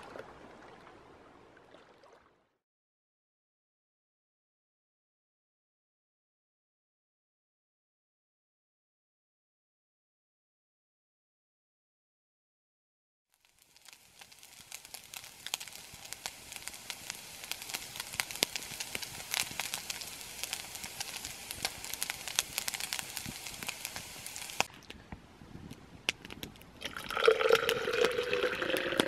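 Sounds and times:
food sizzling in a frying pan: 13.3 - 24.7
hot liquid pouring into cup: 13.4 - 24.7, 26.8 - 29.0.

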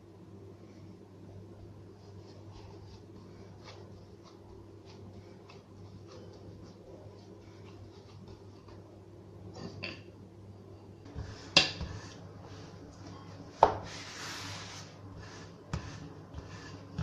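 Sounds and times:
hands rubbing dough: 1.8 - 9.0, 11.1 - 17.0.

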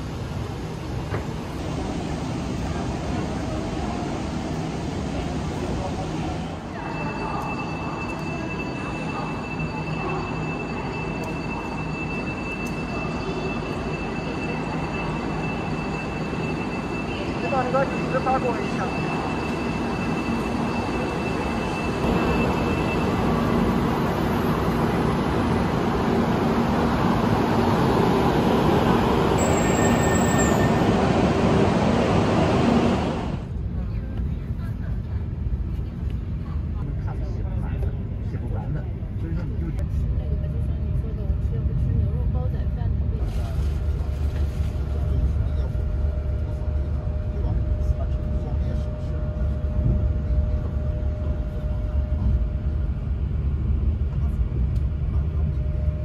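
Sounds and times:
high-pitched train whine: 0.0 - 33.7, 44.4 - 56.0
crowd chatter: 2.5 - 52.8.

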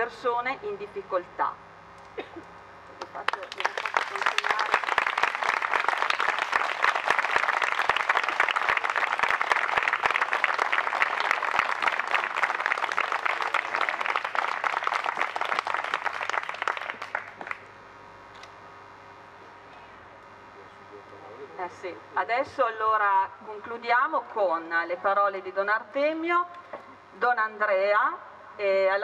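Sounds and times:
audience applauding: 3.1 - 17.7.

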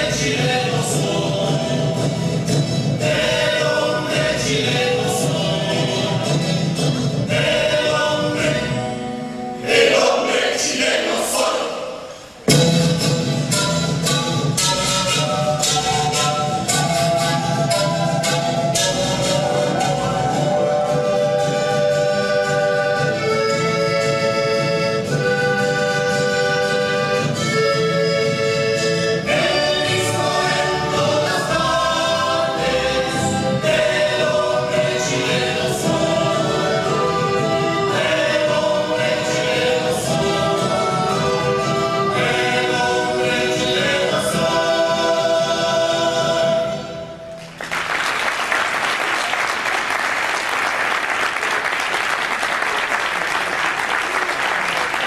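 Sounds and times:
choir singing with accompaniment: 0.0 - 47.4
audience applause: 47.4 - 55.0.

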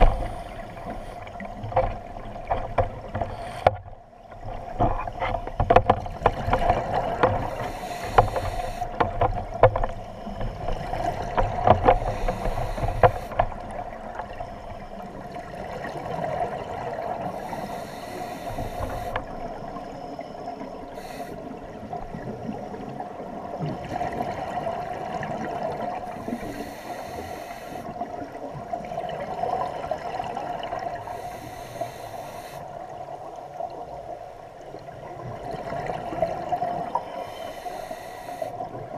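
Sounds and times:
diver breathing through regulator: 0.0 - 1.4, 3.2 - 3.8, 7.4 - 9.0, 11.8 - 13.5, 17.2 - 19.4, 20.9 - 21.6, 26.2 - 28.0, 31.0 - 32.7, 37.0 - 38.6.

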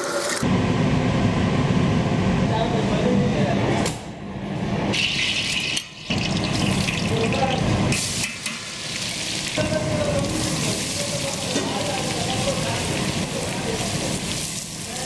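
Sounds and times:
hot oil sizzling in pot: 5.0 - 15.0.

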